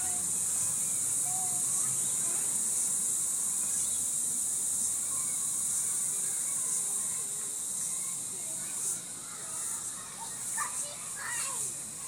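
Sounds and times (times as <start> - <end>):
insect chorus drone: 0.0 - 12.0.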